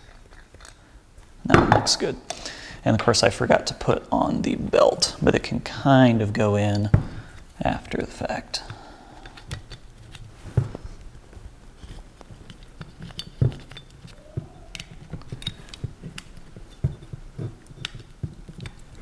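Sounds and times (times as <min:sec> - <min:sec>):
metal parts clicking and knocking: 0:11.8 - 0:19.0.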